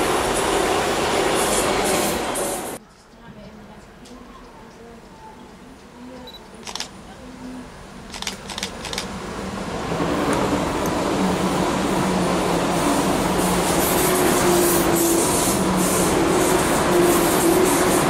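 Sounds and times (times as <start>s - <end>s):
train wheels rushing on rail: 0.0s - 2.8s, 8.2s - 18.0s.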